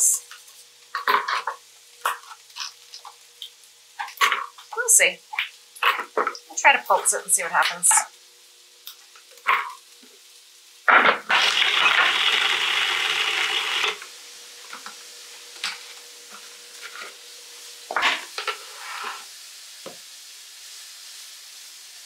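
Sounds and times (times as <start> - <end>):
electric blender grinding: 10.9 - 14.1.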